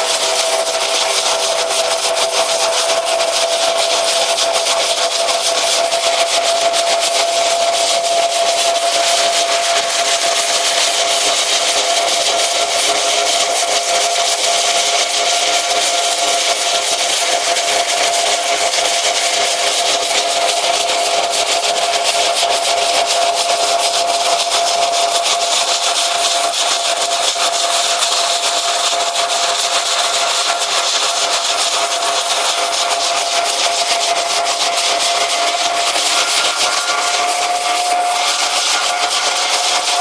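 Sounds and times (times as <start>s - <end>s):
thresher machine whine: 0.0s - 40.0s
hazelnuts rattling through hose: 18.4s - 40.0s.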